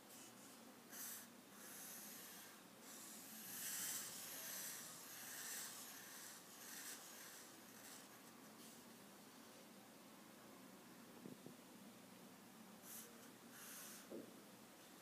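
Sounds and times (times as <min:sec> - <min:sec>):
marker scratching on paper: 0:00.1 - 0:08.8, 0:12.8 - 0:14.1.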